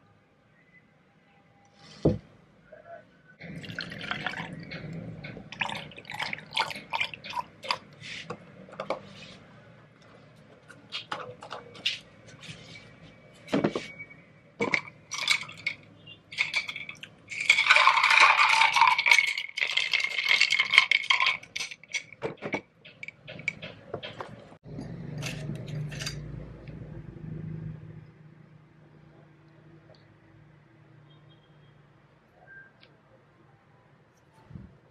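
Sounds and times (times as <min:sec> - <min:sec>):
glass jar clinking and rattling: 0:03.5 - 0:07.8, 0:14.6 - 0:23.7, 0:24.8 - 0:26.3.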